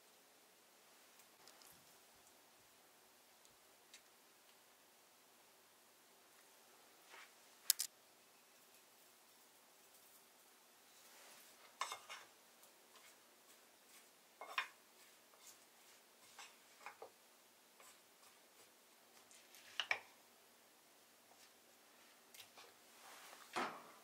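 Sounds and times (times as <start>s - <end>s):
wooden spoon stirring salad in bowl: 11.8s - 17.2s.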